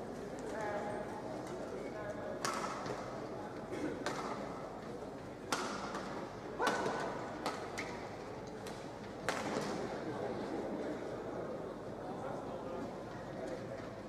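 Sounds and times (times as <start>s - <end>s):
rackets striking shuttlecock: 5.5s - 8.0s.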